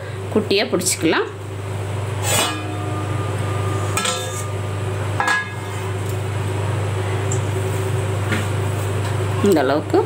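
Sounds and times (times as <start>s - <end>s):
steel dishes clinking: 3.9s - 4.6s, 5.2s - 5.8s.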